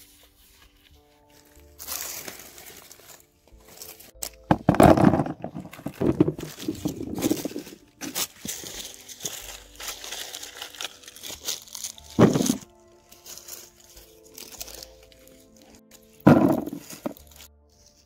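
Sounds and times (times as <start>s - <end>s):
crinkling handling noise: 0.0s - 18.0s
soft background music: 0.0s - 18.0s
loud thump: 16.3s - 16.8s.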